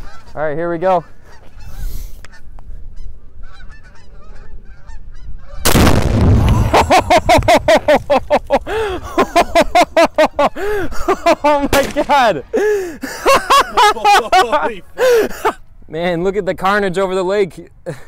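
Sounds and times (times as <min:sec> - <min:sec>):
geese honking: 0:00.0 - 0:05.8
rifle shot and explosion blast: 0:05.6 - 0:07.7.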